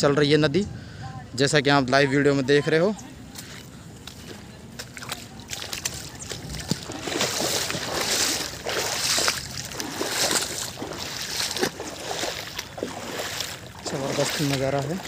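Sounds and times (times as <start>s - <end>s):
river water sloshing: 3.0s - 15.0s.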